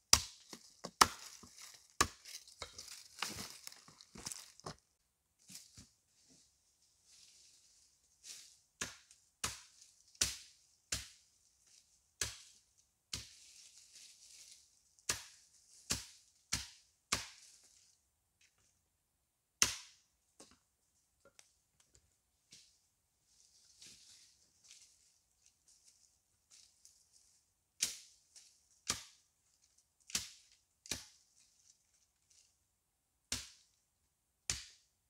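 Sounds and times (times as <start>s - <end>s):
hatchet chopping twigs on wood: 0.1s - 4.4s, 8.8s - 11.2s, 12.2s - 13.4s, 15.0s - 17.6s, 19.6s - 20.6s, 27.8s - 29.3s, 30.1s - 31.2s, 33.3s - 33.7s, 34.5s - 34.9s
twigs crackling: 0.4s - 4.8s.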